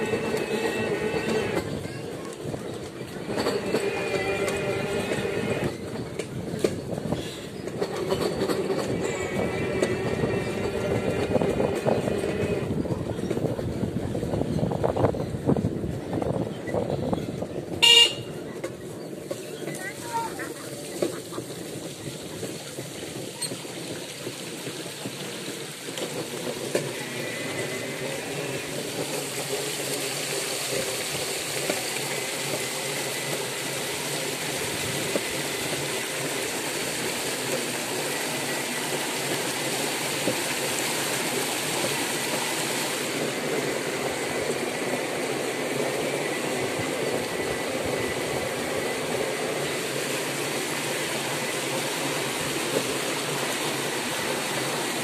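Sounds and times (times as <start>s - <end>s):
floodwater splashing around wheels: 0.0s - 55.0s.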